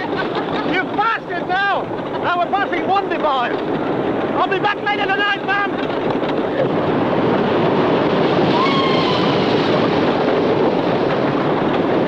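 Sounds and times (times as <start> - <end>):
roller coaster rumble and rattle: 0.0 - 12.0
wind on microphone: 0.0 - 12.0
faint squeal: 8.5 - 9.4.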